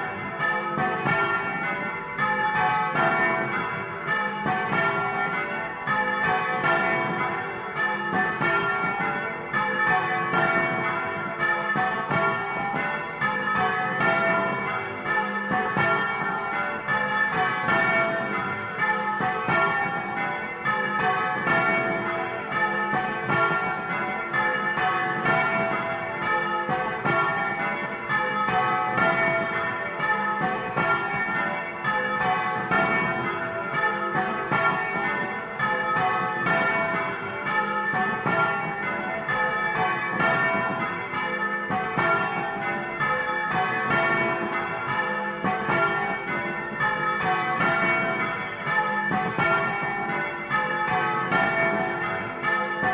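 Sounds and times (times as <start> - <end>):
church bells ringing a peal: 0.0 - 52.9.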